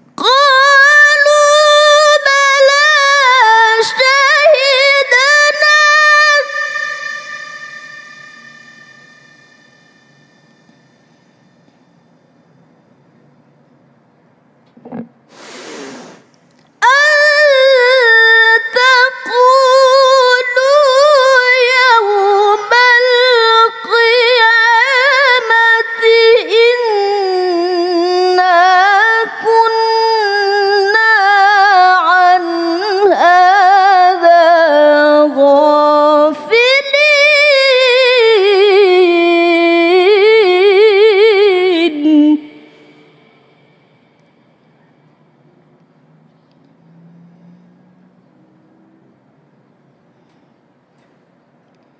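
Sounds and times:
woman chanting melodically: 0.2 - 11.3
breath into microphone: 15.3 - 16.3, 42.5 - 45.2.

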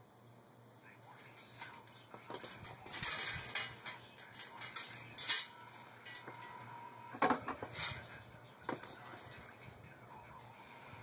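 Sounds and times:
metal tools clinking and rattling: 1.2 - 9.6.

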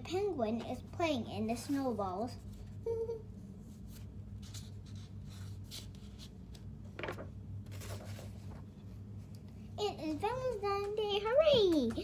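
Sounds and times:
steady low hum: 0.0 - 12.0
paper rustling: 3.8 - 8.7
page turning: 3.9 - 8.7.

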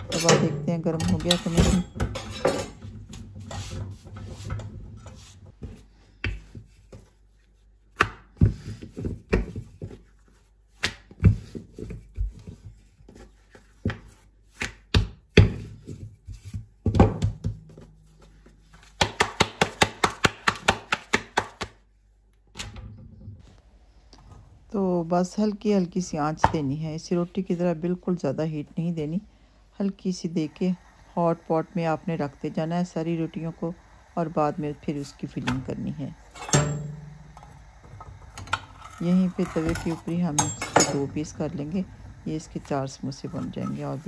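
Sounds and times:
knocks and taps on a griddle: 19.0 - 21.8.

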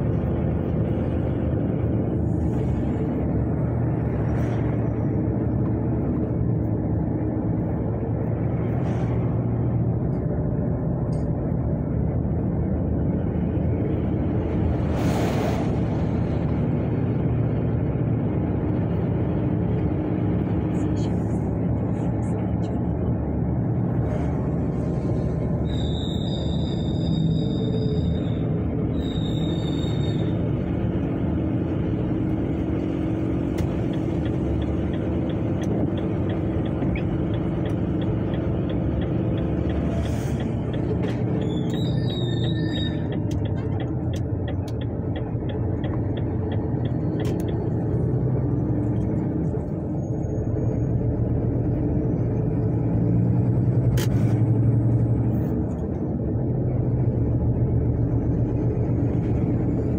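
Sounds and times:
vehicle engine running: 15.8 - 59.9.

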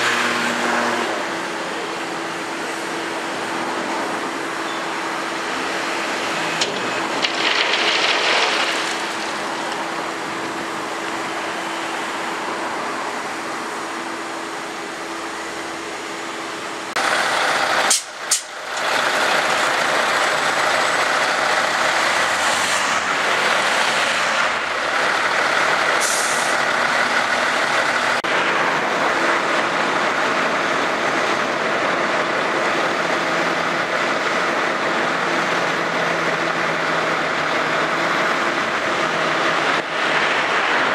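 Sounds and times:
diesel trucks running: 0.0 - 40.9
air brake hisses: 26.0 - 26.5.

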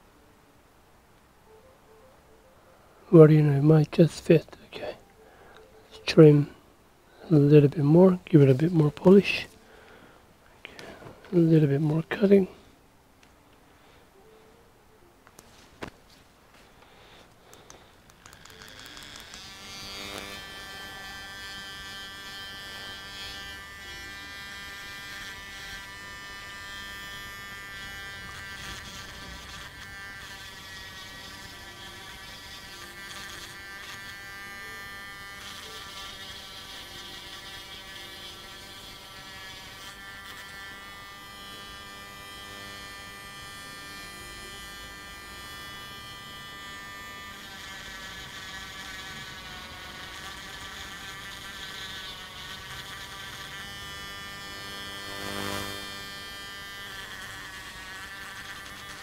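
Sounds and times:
rotary tool grinding plastic: 17.3 - 59.0.

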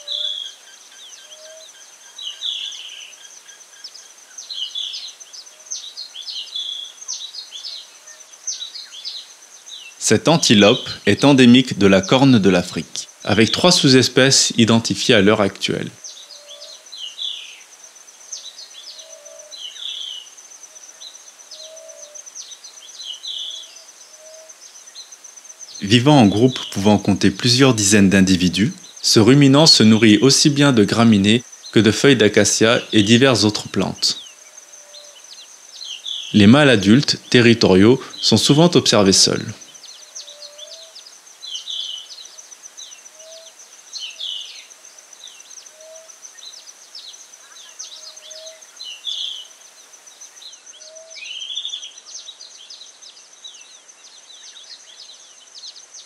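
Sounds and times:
insect high trill: 0.0 - 52.2
bird chirping: 0.0 - 56.0.

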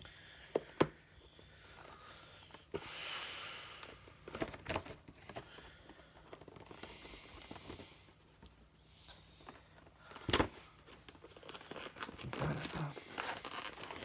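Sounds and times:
soft packaging rustling: 3.7 - 14.0.

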